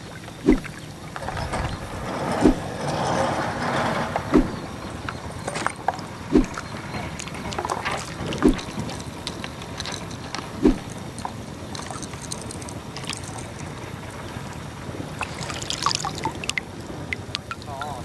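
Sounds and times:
water sloshing and lapping: 0:00.0 - 0:18.0
dull thumps: 0:01.4 - 0:02.8, 0:04.2 - 0:04.8, 0:06.3 - 0:06.6, 0:08.4 - 0:08.9, 0:10.6 - 0:11.0.

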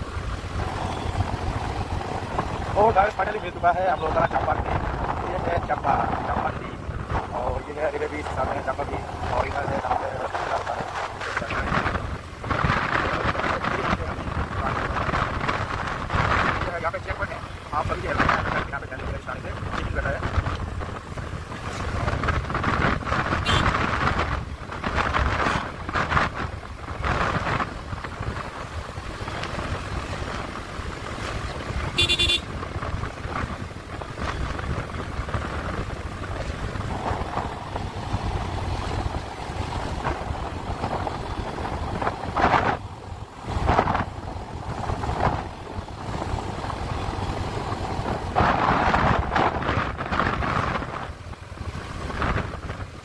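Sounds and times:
vehicle road and wind rumble: 0:00.0 - 0:53.0
car horn toot: 0:23.4 - 0:23.7, 0:31.9 - 0:32.5.

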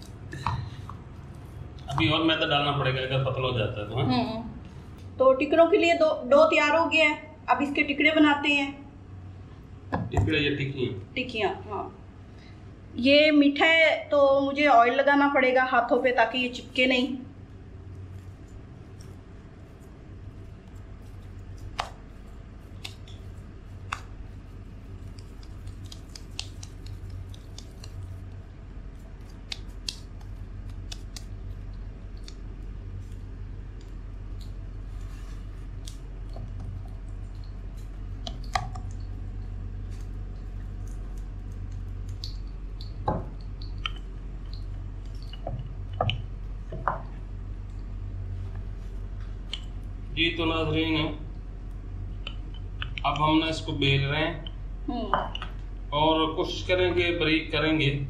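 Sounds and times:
steady low hum: 0:00.0 - 0:58.0
hands kneading sticky dough: 0:14.6 - 0:57.2
light clicks and taps: 0:20.6 - 0:28.4, 0:29.0 - 0:49.9.

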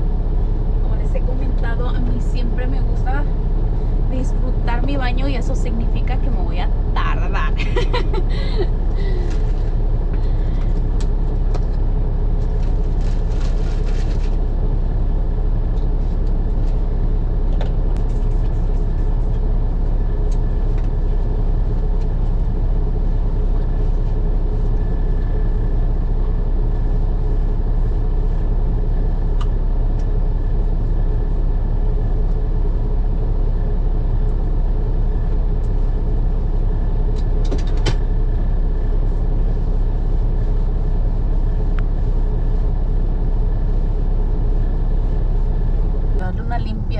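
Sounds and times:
diesel engine idling: 0:00.0 - 0:46.9
faint clicks and rustles: 0:12.4 - 0:14.4.

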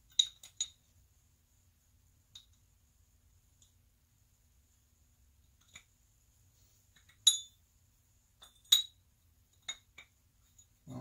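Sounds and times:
metal-on-metal clinks: 0:07.1 - 0:07.6, 0:08.4 - 0:09.0.

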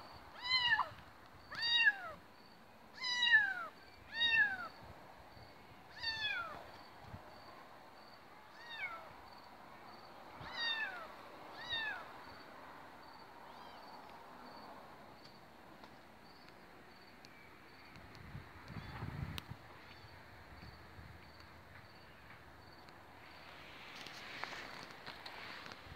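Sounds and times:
kitten meowing: 0:00.4 - 0:00.9, 0:01.5 - 0:02.2, 0:03.0 - 0:04.7, 0:05.9 - 0:06.6, 0:10.4 - 0:12.0, 0:13.5 - 0:13.9.

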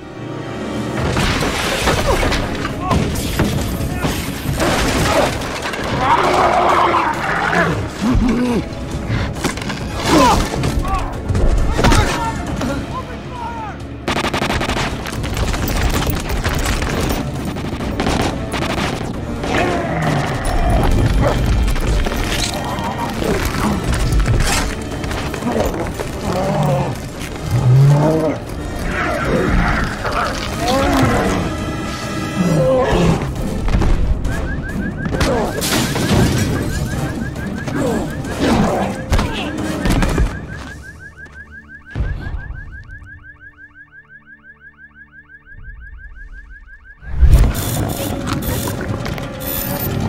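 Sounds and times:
rumbling film score: 0:00.0 - 0:50.0
rapid automatic gunfire: 0:14.1 - 0:19.3
car alarm chirping beeps: 0:34.2 - 0:48.7.

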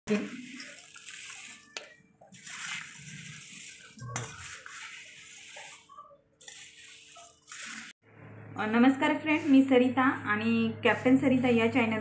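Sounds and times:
spoon scraping metal pan: 0:00.1 - 0:08.0
dry puffed rice rustling: 0:00.2 - 0:07.9.

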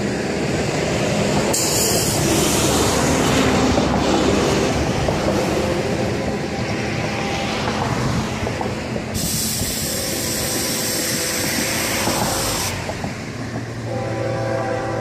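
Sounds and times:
freight train rumble: 0:00.0 - 0:15.0
high hissing noise: 0:09.1 - 0:12.8.

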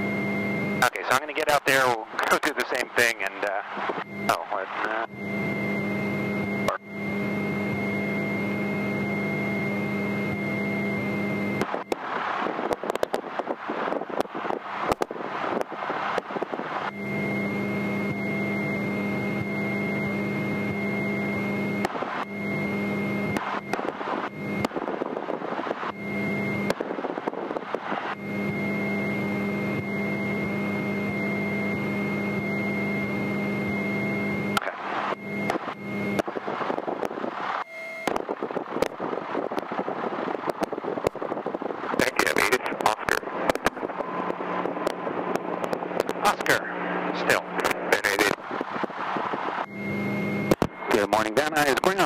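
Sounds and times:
propeller airplane engine running: 0:00.0 - 0:52.0.

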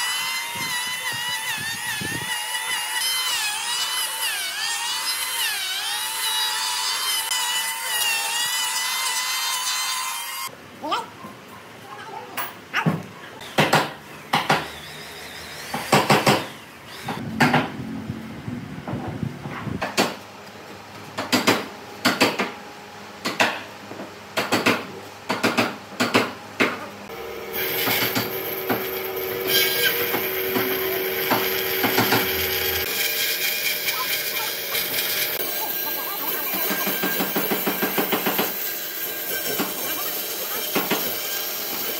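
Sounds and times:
power tool running: 0:00.0 - 0:10.5, 0:14.3 - 0:18.6, 0:27.1 - 0:41.9.

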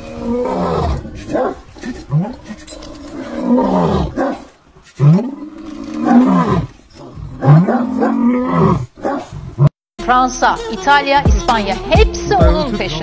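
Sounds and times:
dog giving deep roaring calls: 0:00.0 - 0:09.7.

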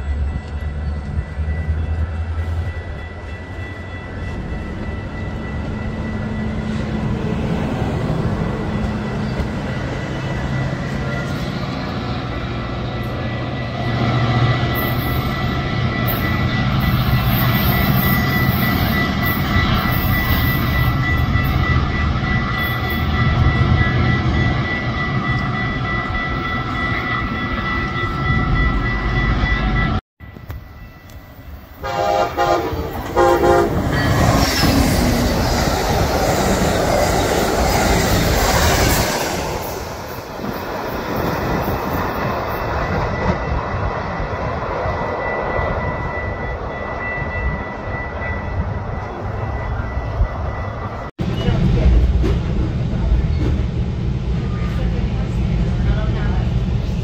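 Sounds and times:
train high whine: 0:00.0 - 0:57.0
train low rumble: 0:00.0 - 0:57.0
train horn blasts: 0:31.7 - 0:34.7.

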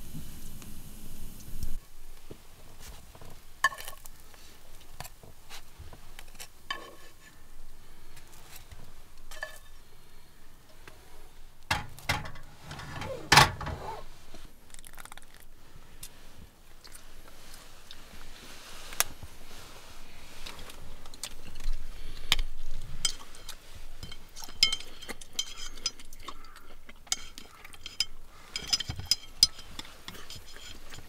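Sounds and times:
utensils clinking on frying pan: 0:24.0 - 0:26.4, 0:27.1 - 0:30.9.

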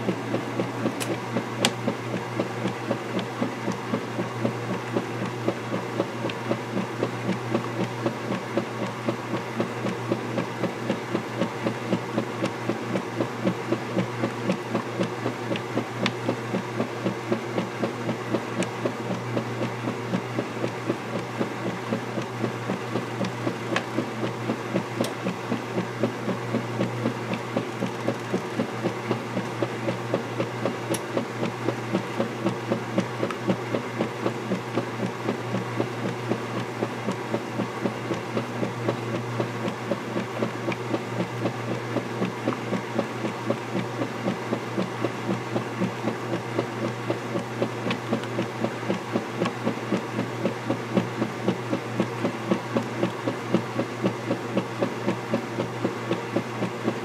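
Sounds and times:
washer motor hum: 0:00.0 - 0:57.0.

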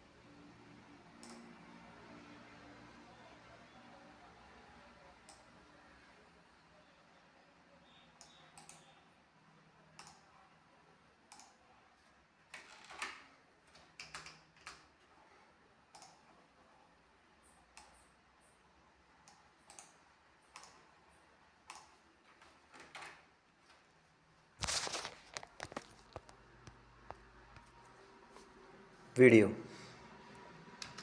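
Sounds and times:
faint irregular clicks: 0:11.3 - 0:11.6, 0:15.9 - 0:16.3, 0:19.2 - 0:20.9, 0:21.6 - 0:22.8.

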